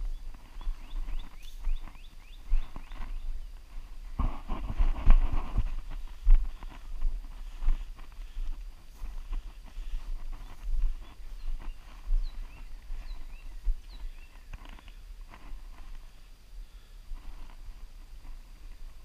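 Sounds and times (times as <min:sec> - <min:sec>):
bird chirping rapidly: 0:00.0 - 0:03.5, 0:10.4 - 0:14.5
footsteps on wet grass: 0:00.0 - 0:16.2
rustling through brush: 0:00.0 - 0:19.0.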